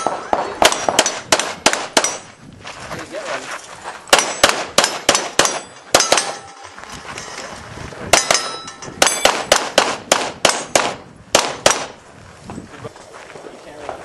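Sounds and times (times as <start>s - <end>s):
pistol shots: 0.0s - 2.3s, 4.1s - 6.5s, 8.1s - 12.0s
steel plates clanging: 4.2s - 7.5s, 8.2s - 9.4s.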